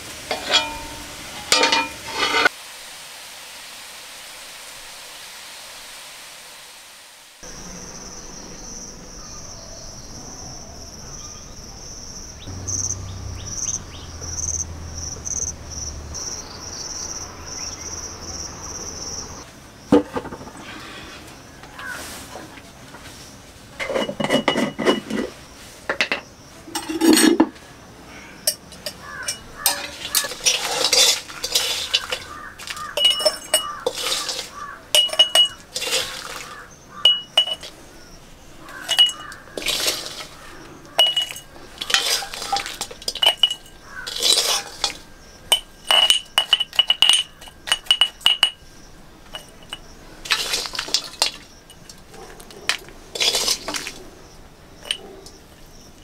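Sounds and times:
metal spoon scraping a wok: 0.0s - 2.5s, 28.5s - 37.9s, 38.6s - 48.5s, 49.3s - 52.1s, 53.1s - 54.0s
spoon clinking against glass jar: 0.3s - 2.5s, 28.5s - 37.8s, 38.7s - 48.6s, 49.3s - 52.0s, 53.1s - 54.0s, 54.8s - 55.4s.

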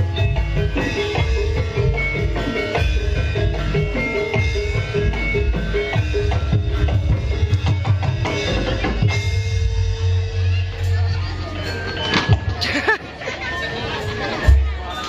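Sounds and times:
drum strokes: 0.0s - 11.2s
metallophone notes: 0.0s - 15.0s.

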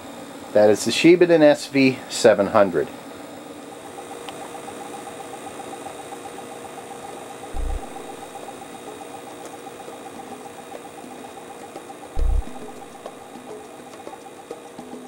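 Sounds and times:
tape recorder mechanical hum: 0.0s - 15.0s
deep thump: 7.6s - 8.4s, 12.2s - 13.1s.

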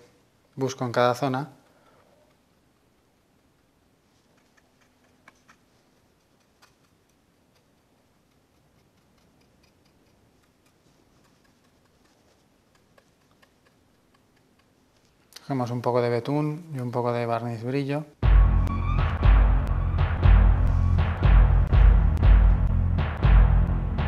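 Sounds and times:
faint clicks and light tapping: 1.6s - 15.5s.

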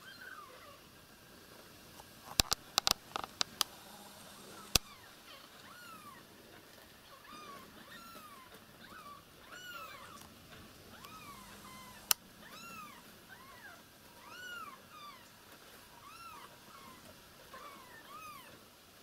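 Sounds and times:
sharp clicks: 2.3s - 4.9s, 11.0s - 12.2s
kittens mewing: 7.1s - 15.3s.

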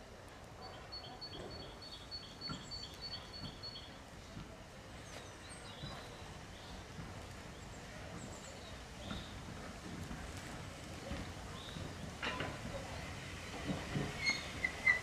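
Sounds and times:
steam locomotive rumble: 0.0s - 15.0s
bird singing: 0.7s - 4.0s.

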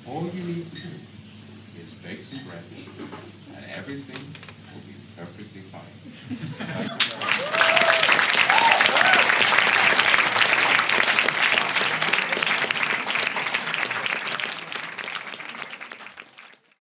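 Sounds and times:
audience applauding: 6.8s - 16.8s.

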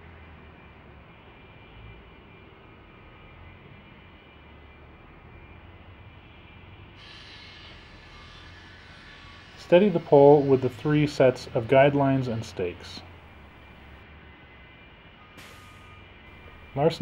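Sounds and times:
low outdoor rumble: 9.4s - 14.4s, 16.1s - 17.0s.

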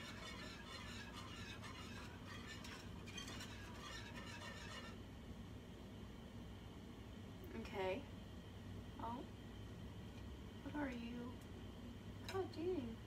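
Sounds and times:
whisk scraping a saucepan: 0.0s - 5.0s.

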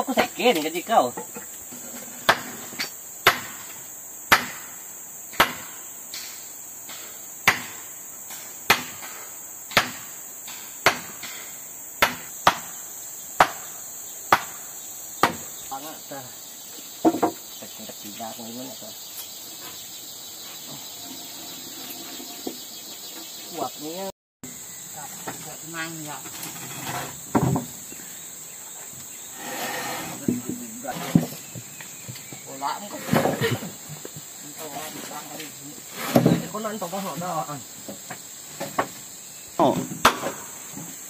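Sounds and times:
forest insects droning: 0.0s - 41.0s
tool striking wood: 2.2s - 4.7s, 5.3s - 12.8s, 13.4s - 14.6s, 15.2s - 15.5s, 17.0s - 17.4s, 39.7s - 40.9s.

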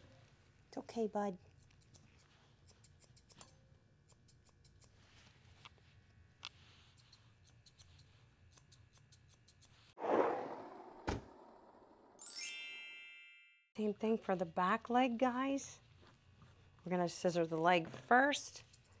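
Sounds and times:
deep thud sound effect: 10.0s - 11.5s
swoosh sound effect: 10.0s - 12.6s.

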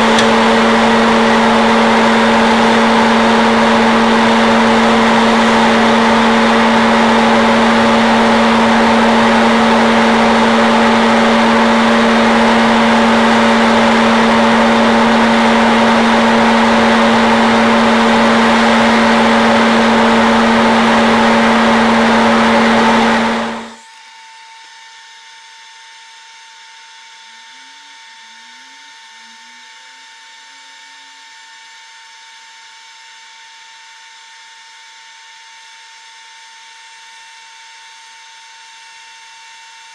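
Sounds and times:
popcorn popper fan whirring: 0.0s - 23.8s.

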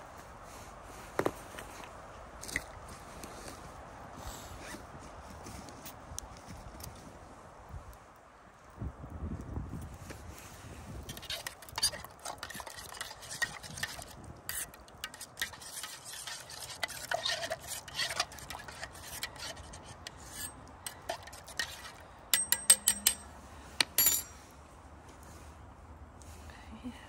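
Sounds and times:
metal spoon scraping pot: 11.0s - 24.3s
spoon tapping pot rim: 20.4s - 23.2s.

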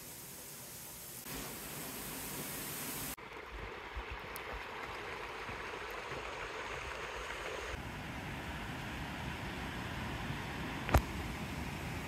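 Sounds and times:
flowing water: 0.0s - 12.0s
waterfall rushing: 1.2s - 3.2s.

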